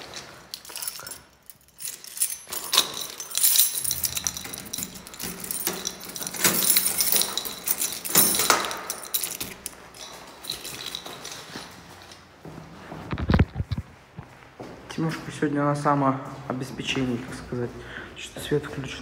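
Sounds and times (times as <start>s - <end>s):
metal keys jangling: 0.0s - 12.3s.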